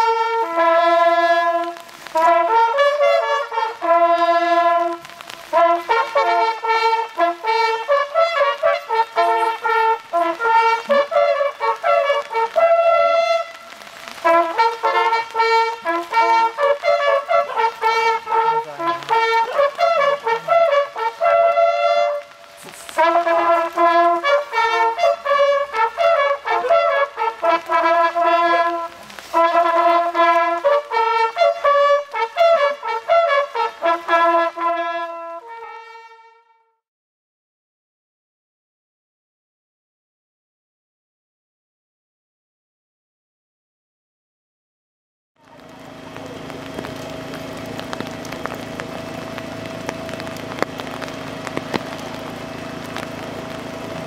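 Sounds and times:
brass horns playing a fanfare: 0:00.0 - 0:36.8.

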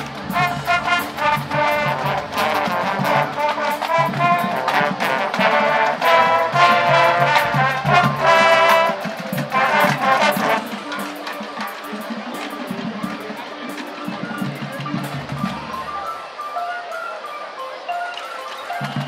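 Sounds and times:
brass held chords: 0:00.0 - 0:11.8
light percussion: 0:00.0 - 0:19.0
marching band playing: 0:00.0 - 0:19.0.

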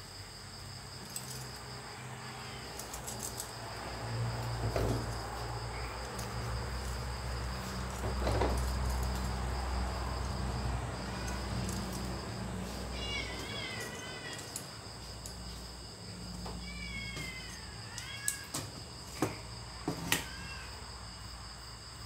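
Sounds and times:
high insect trill: 0:00.0 - 0:22.0
cat meowing: 0:11.0 - 0:14.8, 0:16.4 - 0:18.7, 0:19.8 - 0:20.8.

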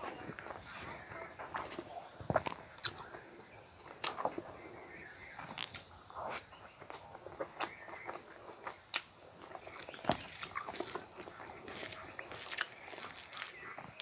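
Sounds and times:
person chewing food: 0:03.8 - 0:04.4, 0:05.4 - 0:14.0.

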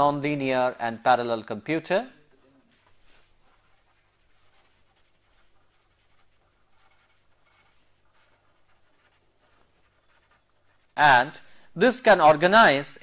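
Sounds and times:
pen scratching on paper: 0:02.6 - 0:11.0.

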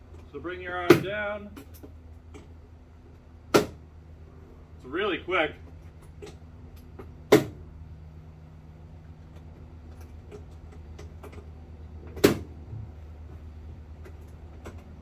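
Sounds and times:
steady low hum: 0:00.0 - 0:15.0
latch snapping shut: 0:12.1 - 0:12.5.

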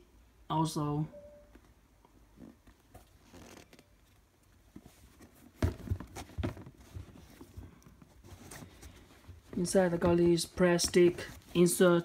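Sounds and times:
sneakers rubbing and rustling: 0:04.6 - 0:12.0
shoe knocking and scuffing: 0:05.5 - 0:07.5.

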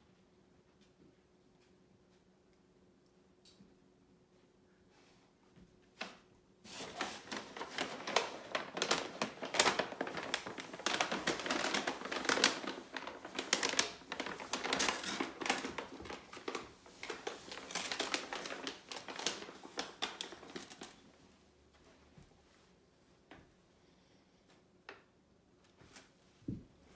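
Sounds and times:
paper bag crinkling: 0:06.7 - 0:21.1.

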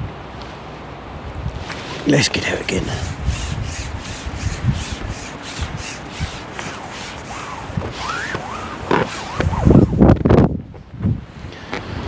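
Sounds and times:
wind rumbling on microphone: 0:01.1 - 0:12.0
fishing pole sections sliding: 0:01.6 - 0:10.3.

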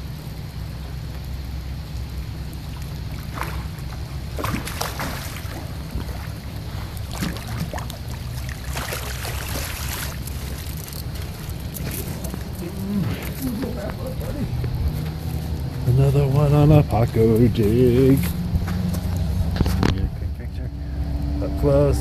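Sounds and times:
wind rumble on microphone: 0:00.0 - 0:22.0
fish splashing water: 0:01.7 - 0:15.7.

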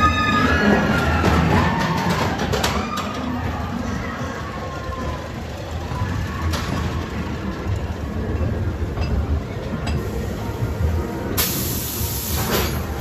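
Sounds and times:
ride car rumbling along track: 0:00.0 - 0:13.0
loud hiss: 0:11.4 - 0:12.7.

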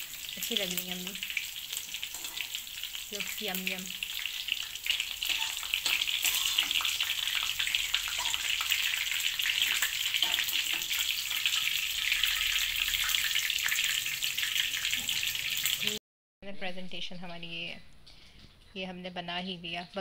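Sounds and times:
oil sizzling in a wok: 0:00.0 - 0:16.0.

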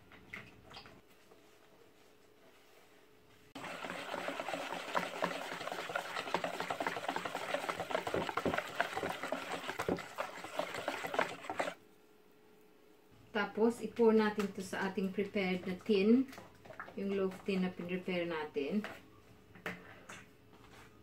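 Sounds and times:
whisk beating batter in bowl: 0:03.6 - 0:11.8.

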